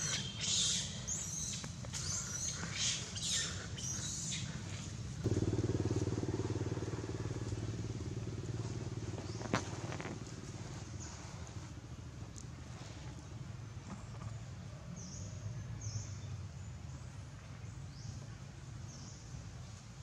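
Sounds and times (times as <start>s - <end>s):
small motorcycle engine running: 5.1s - 11.8s.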